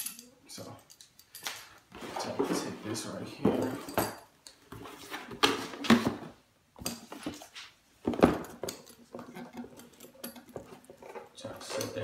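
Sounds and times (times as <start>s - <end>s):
metal spikes clinking: 0.0s - 1.8s.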